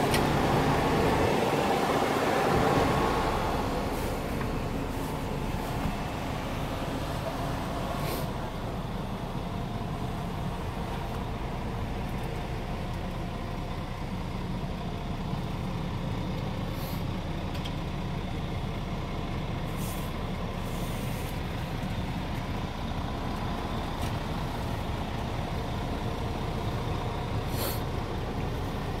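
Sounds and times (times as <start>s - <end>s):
diesel engine idling: 0.0s - 29.0s
brief air hisses: 8.0s - 8.3s, 16.8s - 17.0s, 19.8s - 21.3s, 27.5s - 27.8s.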